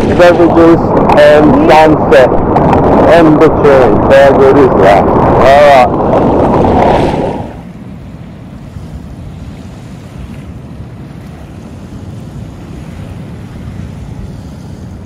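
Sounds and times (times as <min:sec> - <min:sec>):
water rushing: 0:00.0 - 0:15.0
wind on microphone: 0:00.0 - 0:15.0
small waves lapping on beach: 0:07.0 - 0:15.0.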